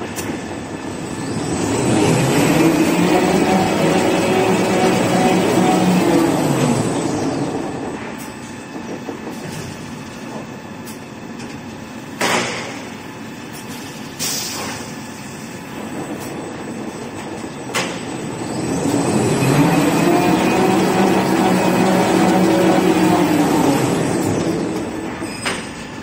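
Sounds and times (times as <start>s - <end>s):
machine running: 0.0s - 14.1s, 15.4s - 26.0s.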